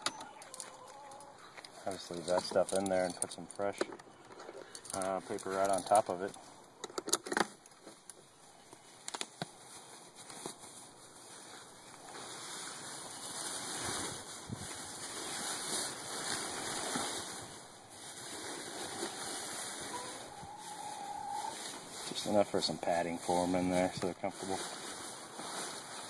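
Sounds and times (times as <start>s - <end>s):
shredded paper and plastic bag rustling: 9.6s - 26.0s.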